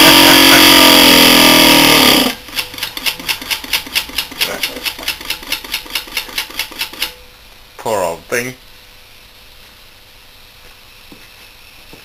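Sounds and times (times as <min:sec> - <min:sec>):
compressor running and seizing: 0:00.0 - 0:07.2.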